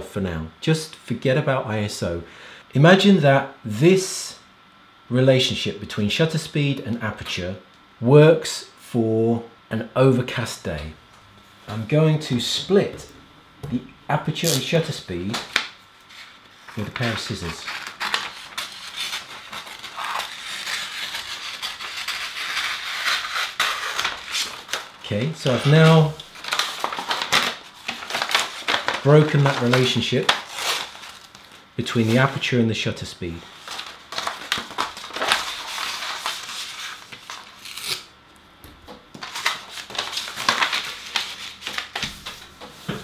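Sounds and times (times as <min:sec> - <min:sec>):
paper rustling: 0:15.2 - 0:32.4, 0:33.4 - 0:38.0, 0:39.1 - 0:43.0
scissors cutting paper: 0:16.7 - 0:24.9.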